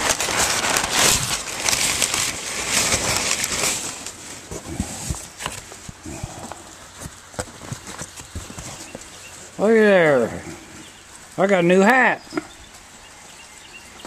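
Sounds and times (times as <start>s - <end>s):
packing paper rustling: 0.0s - 9.8s.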